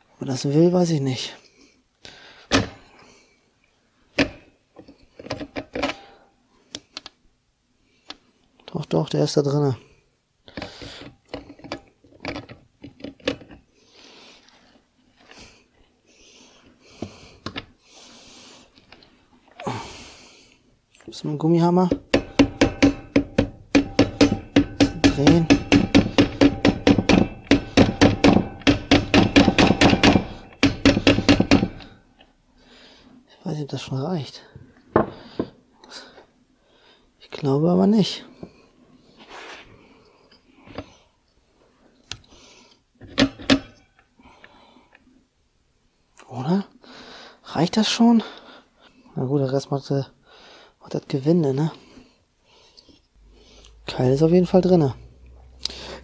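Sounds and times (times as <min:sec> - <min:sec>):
clicks and knocks of engine parts: 0:21.9 - 0:32.0
rubber mallet tapping metal: 0:21.9 - 0:32.0.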